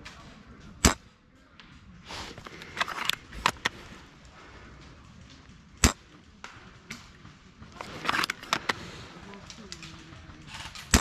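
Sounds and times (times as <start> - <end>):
rifle bolt clattering and clicking: 7.8 - 8.8.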